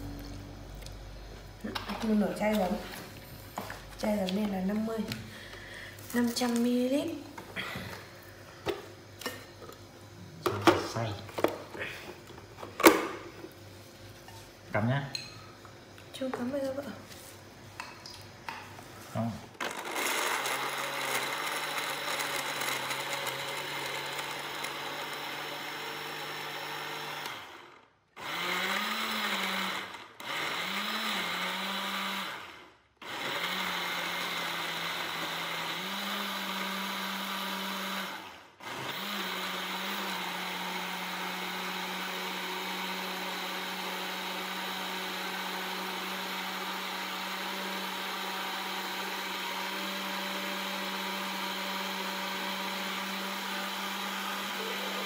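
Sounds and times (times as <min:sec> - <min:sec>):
blender motor grinding: 0:19.6 - 0:55.0.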